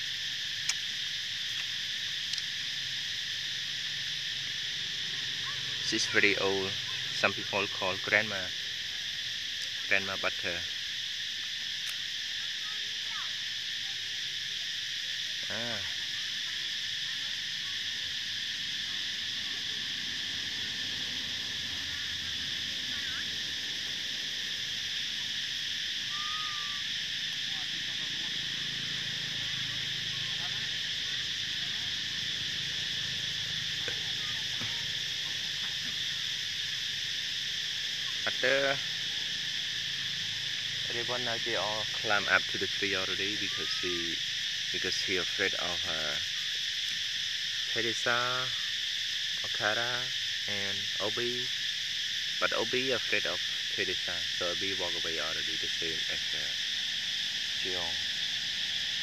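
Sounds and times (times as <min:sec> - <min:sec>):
insect chorus drone: 0:00.0 - 0:59.0
faint whistle: 0:26.1 - 0:26.8.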